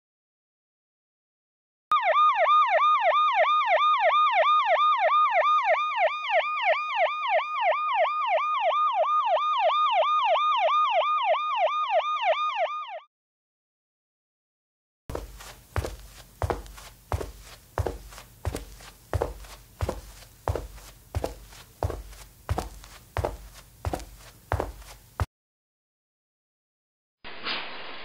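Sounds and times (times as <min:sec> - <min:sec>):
siren yelping: 0:01.9 - 0:13.1.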